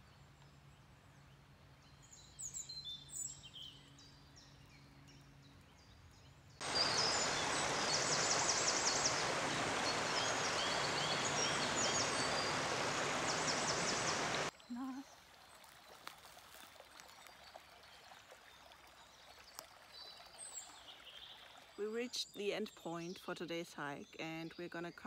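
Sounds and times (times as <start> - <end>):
birds chirping: 6.6 - 15.0
brook running over stones: 6.6 - 21.9.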